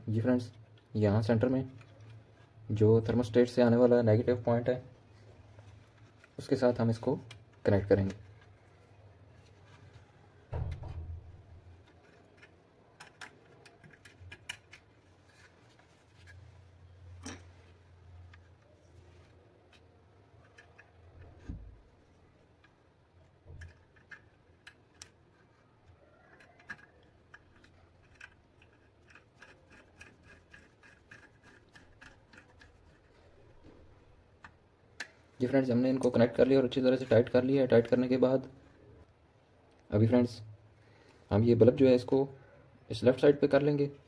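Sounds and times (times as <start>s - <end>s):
fingers clicking and scraping wire: 11.8s - 16.5s, 19.6s - 35.2s
screwdriver turning screw: 26.4s - 33.1s.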